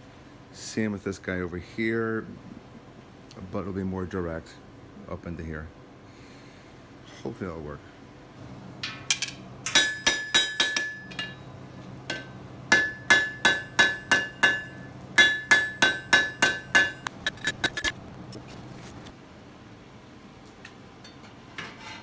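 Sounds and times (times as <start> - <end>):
anvil ringing: 8.8 - 11.5, 12.1 - 17.1
hammer striking steel on anvil: 8.8 - 11.5, 12.1 - 17.9.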